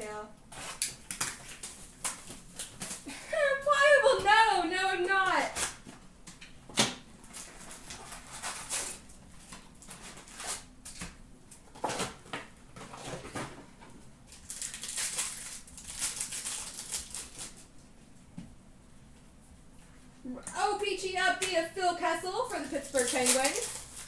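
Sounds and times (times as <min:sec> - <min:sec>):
foil packs crinkling: 0:00.5 - 0:05.8, 0:07.2 - 0:13.5, 0:14.3 - 0:17.7, 0:22.0 - 0:24.0.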